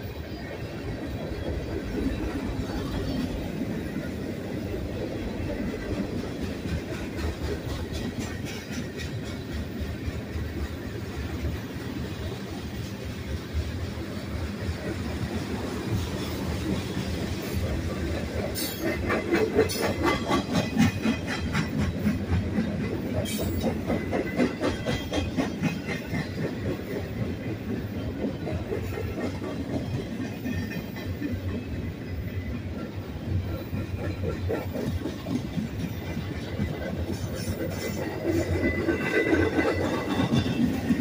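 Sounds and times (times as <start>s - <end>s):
train wheels rumbling on rails: 0.0s - 41.0s
wheels clacking over rail joints: 0.0s - 41.0s.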